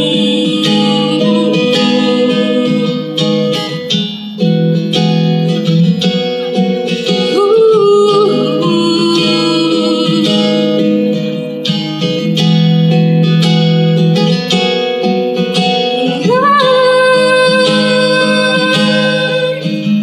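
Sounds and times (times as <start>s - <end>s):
woman singing: 0.0s - 3.9s, 5.6s - 11.6s, 15.6s - 20.0s
acoustic guitar playing: 0.0s - 20.0s.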